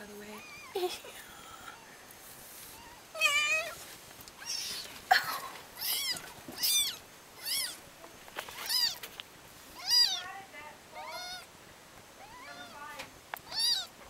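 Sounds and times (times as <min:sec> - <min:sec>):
kittens mewing: 0:02.6 - 0:07.8, 0:08.5 - 0:09.1, 0:09.8 - 0:10.4, 0:11.0 - 0:11.5, 0:12.2 - 0:14.0.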